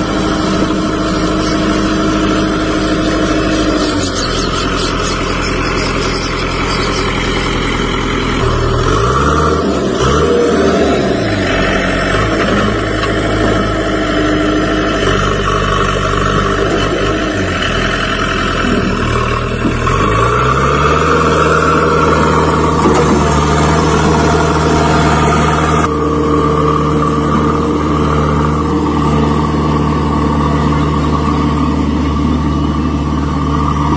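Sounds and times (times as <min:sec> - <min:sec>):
diesel engine revving: 0:00.0 - 0:33.9.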